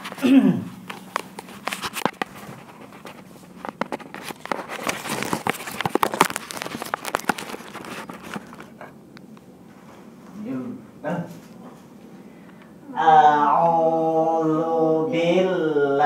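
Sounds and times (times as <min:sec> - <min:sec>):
phone handling clicks and crackles: 0:03.6 - 0:09.5.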